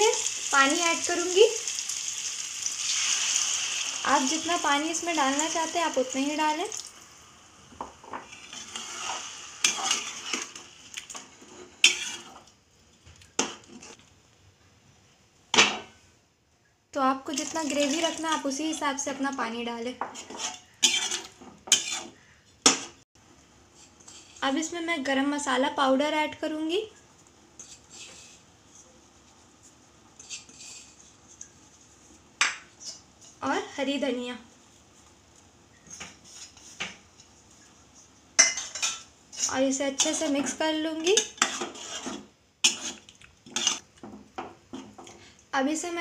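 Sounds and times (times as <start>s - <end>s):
soft kitchen scrapes and rustles: 3.0s - 14.1s, 17.3s - 24.8s, 26.8s - 44.0s
spoon knocking and scraping pan: 7.7s - 12.5s, 13.4s - 14.0s, 17.4s - 23.0s, 35.9s - 37.4s, 38.3s - 45.2s
metal spoon stirring in a pan: 8.1s - 12.5s, 17.3s - 19.2s, 20.0s - 23.0s, 23.7s - 24.4s, 27.6s - 28.8s, 30.1s - 31.6s, 35.9s - 45.2s.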